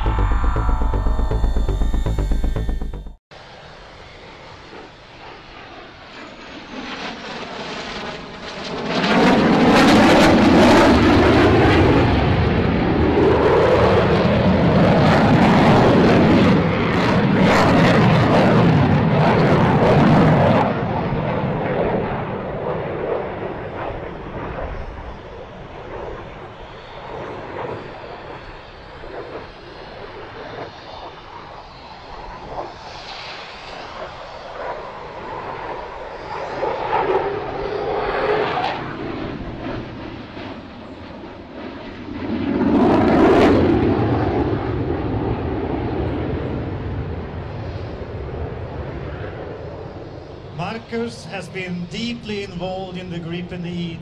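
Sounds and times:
fighter jet flyby roar: 0:00.0 - 0:25.1.

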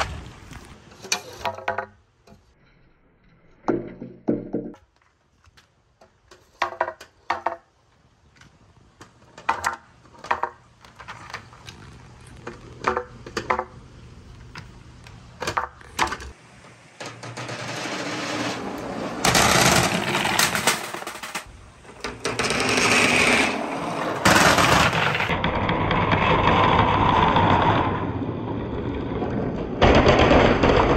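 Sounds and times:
billiard balls rolling on wooden track: 0:01.0 - 0:02.4, 0:06.0 - 0:07.8, 0:09.0 - 0:14.7, 0:15.4 - 0:30.9
billiard balls clacking: 0:01.2 - 0:02.0, 0:06.3 - 0:07.7, 0:09.0 - 0:11.6, 0:12.5 - 0:13.8, 0:15.4 - 0:26.7.

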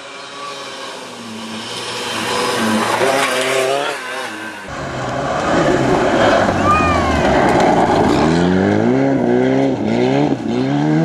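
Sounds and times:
gravel hissing under tyres: 0:00.0 - 0:06.5
rally car engine revving past: 0:00.2 - 0:11.0.

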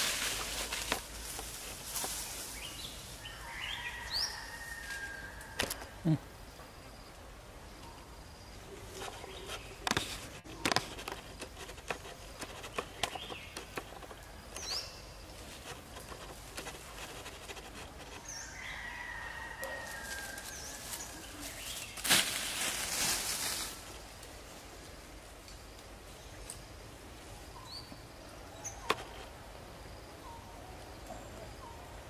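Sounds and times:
undergrowth rustling and snapping: 0:00.0 - 0:02.8, 0:19.9 - 0:24.4.

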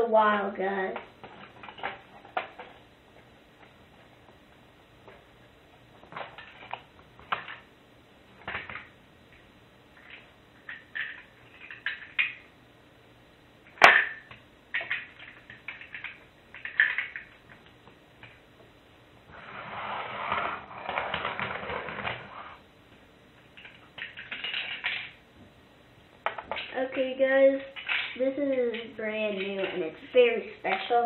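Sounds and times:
plastic pieces clicking and rattling: 0:10.0 - 0:12.4, 0:13.8 - 0:17.6, 0:23.6 - 0:25.2, 0:26.2 - 0:26.9, 0:27.6 - 0:31.0.

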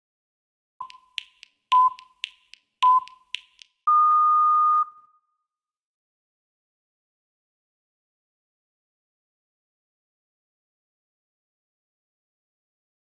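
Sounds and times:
sharp clicks: 0:00.8 - 0:03.9
interval timer beeping: 0:00.8 - 0:05.1.

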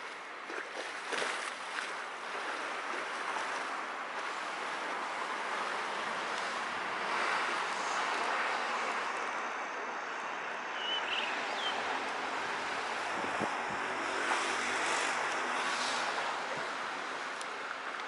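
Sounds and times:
outdoor background rush: 0:00.0 - 0:18.0.

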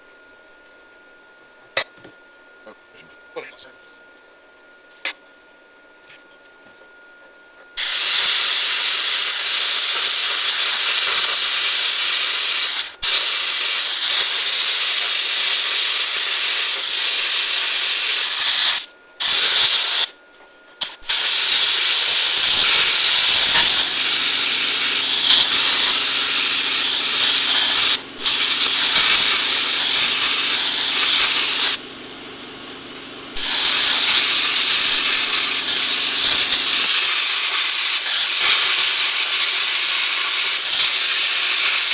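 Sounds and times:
plasma cutter hissing: 0:07.8 - 0:20.1, 0:20.8 - 0:31.8, 0:33.4 - 0:41.9.

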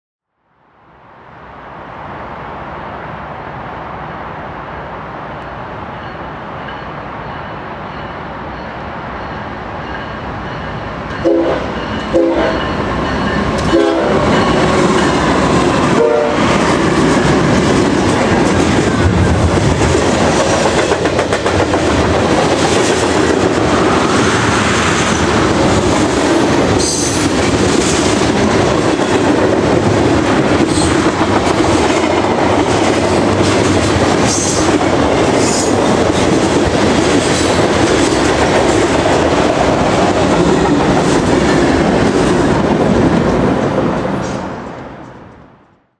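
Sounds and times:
train rumbling: 0:01.0 - 0:45.9
train wheels clacking and rattling: 0:09.4 - 0:45.2
train horn blasts: 0:11.2 - 0:12.8, 0:13.6 - 0:14.4, 0:15.9 - 0:16.6.

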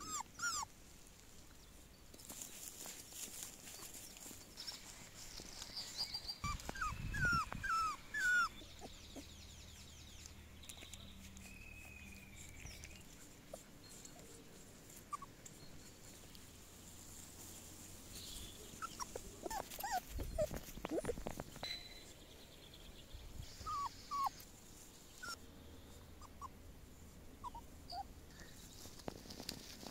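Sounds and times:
puppies squeaking and whimpering: 0:00.0 - 0:00.7, 0:05.9 - 0:09.3, 0:12.4 - 0:16.2, 0:18.6 - 0:21.7, 0:23.6 - 0:24.4, 0:25.2 - 0:25.4, 0:26.2 - 0:26.6, 0:27.4 - 0:28.1.

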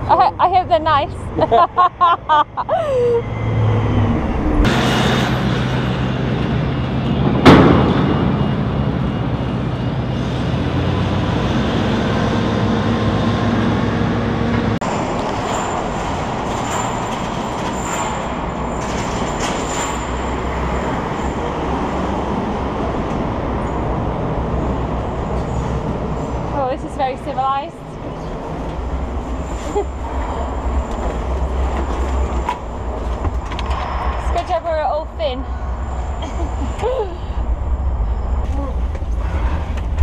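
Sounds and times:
machinery drone: 0:00.0 - 0:40.0
loud metallic bang: 0:04.5 - 0:06.4, 0:07.1 - 0:10.4
faint high squeals: 0:33.6 - 0:39.8.

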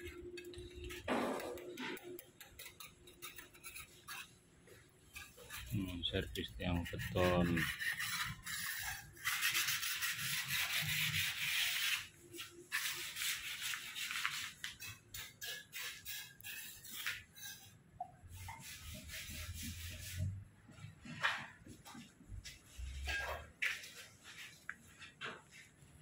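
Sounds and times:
hand sanding concrete: 0:05.4 - 0:12.1.

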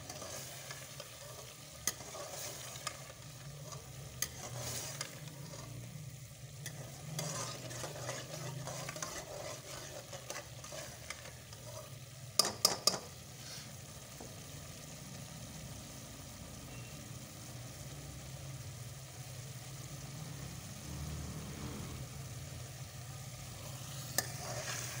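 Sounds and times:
ladle stirring and scraping pot: 0:00.0 - 0:13.8, 0:23.6 - 0:25.0
curry sizzling and bubbling: 0:00.0 - 0:25.0.

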